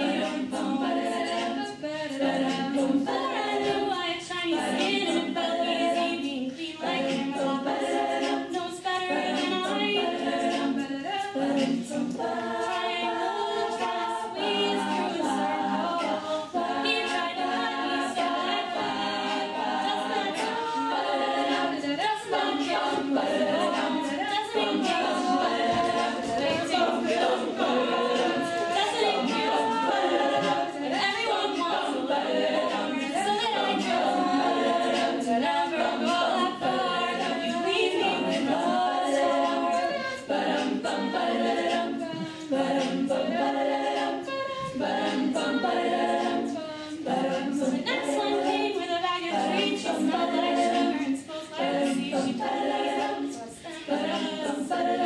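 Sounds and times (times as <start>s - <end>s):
women singing a cappella: 0.0s - 55.0s.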